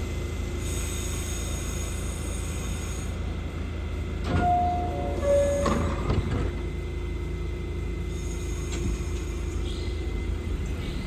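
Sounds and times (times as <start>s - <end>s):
subway train humming: 0.0s - 11.0s
train doors clattering shut: 4.2s - 6.7s
two-tone door chime: 4.3s - 6.2s.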